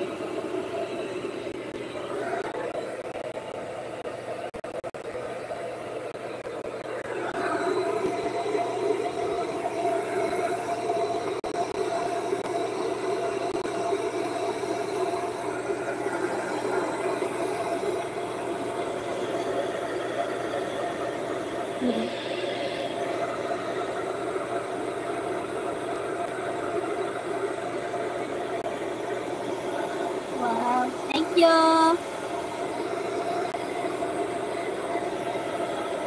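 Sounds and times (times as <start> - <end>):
hair dryer running: 6.9 - 24.6.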